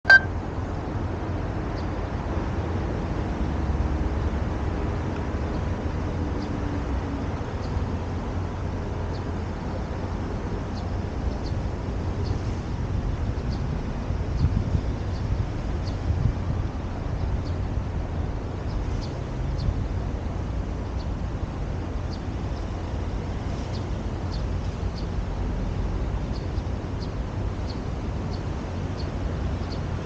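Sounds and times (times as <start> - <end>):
short electronic beep: 0.0 - 0.4
distant traffic rumble: 0.0 - 30.0
wind on microphone: 10.1 - 30.0.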